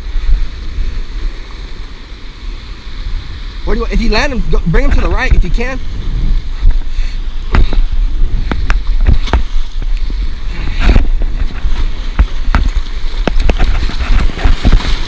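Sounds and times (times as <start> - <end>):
surf washing against rocks: 0.0 - 15.0
wind buffeting microphone: 0.0 - 15.0
sharp knocks and bumps: 7.5 - 9.6, 10.8 - 15.0.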